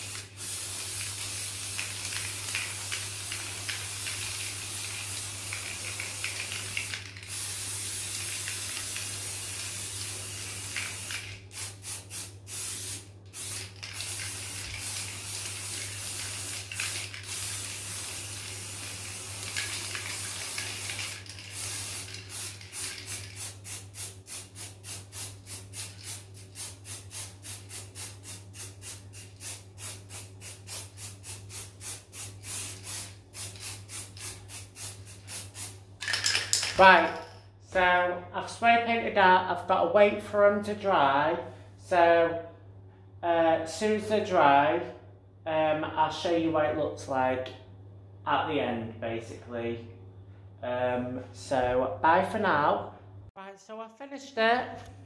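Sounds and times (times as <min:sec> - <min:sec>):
spray paint can hissing: 0:00.0 - 0:37.3.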